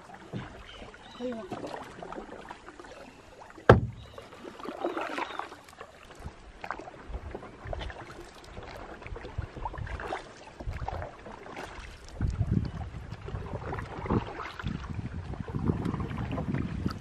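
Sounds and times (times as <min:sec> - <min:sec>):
paddle swishing through water: 0:00.0 - 0:17.0
paddle knocking on canoe: 0:00.1 - 0:02.5, 0:03.6 - 0:05.5.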